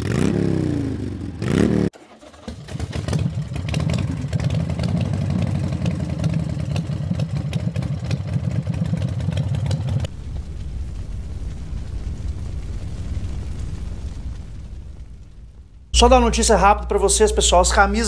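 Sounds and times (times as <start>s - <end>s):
motorcycle engine revving: 0.0s - 10.2s
motorcycle engine rumbling: 0.0s - 18.0s.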